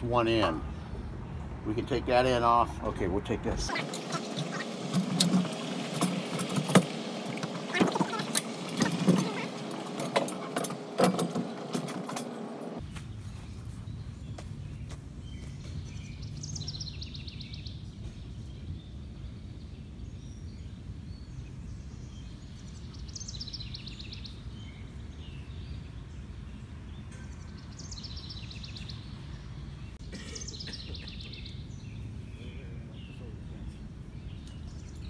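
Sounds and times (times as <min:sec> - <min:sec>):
songbird trilling: 0:03.7 - 0:05.9.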